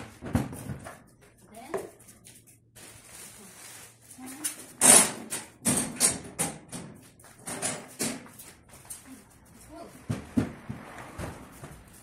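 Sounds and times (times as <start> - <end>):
plastic bags rustling: 2.5 - 4.8.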